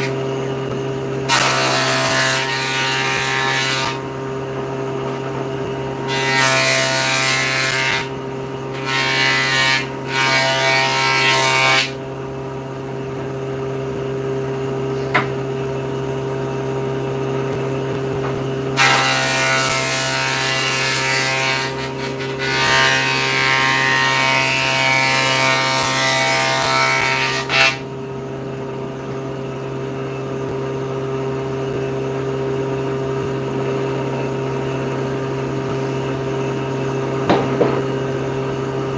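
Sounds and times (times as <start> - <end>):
saw blade cutting board: 0.0 - 4.1, 4.8 - 12.1, 18.2 - 27.9, 35.7 - 36.2
table saw whining: 0.0 - 38.9.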